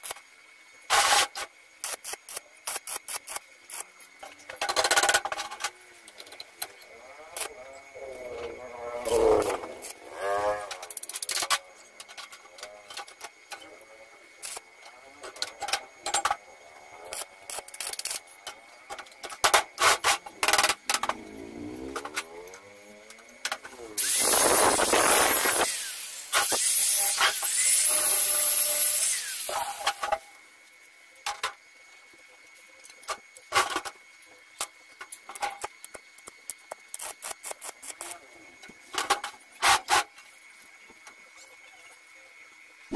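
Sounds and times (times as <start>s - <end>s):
angle grinder grinding steel: 6.9s - 11.5s, 19.8s - 30.0s.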